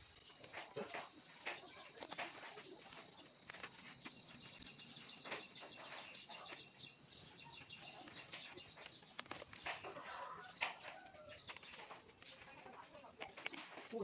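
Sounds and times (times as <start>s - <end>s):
small birds chirping: 0.0s - 14.0s
leaves snapping off by hand: 8.0s - 14.0s.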